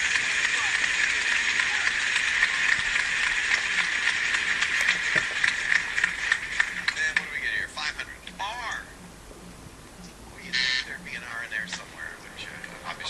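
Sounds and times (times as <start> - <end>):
studio applause: 0.0 - 7.7.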